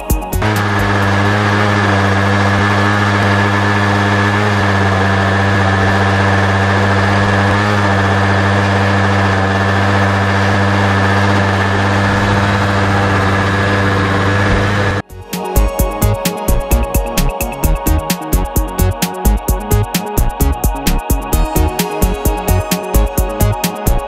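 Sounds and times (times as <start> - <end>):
model aircraft engine buzzing: 0.0 - 24.0.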